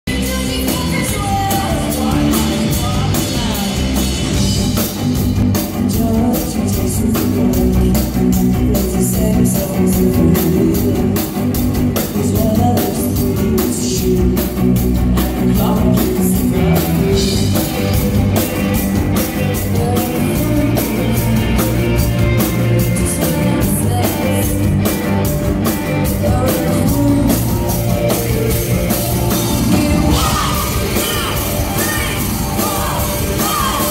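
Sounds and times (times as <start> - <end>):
bass guitar: 0.0 - 33.9
woman singing: 0.1 - 4.2, 5.8 - 11.4, 12.0 - 14.6, 15.2 - 25.0, 26.0 - 28.0, 29.6 - 33.9
drum kit at a steady beat: 0.1 - 33.9
electric guitar: 0.1 - 33.9.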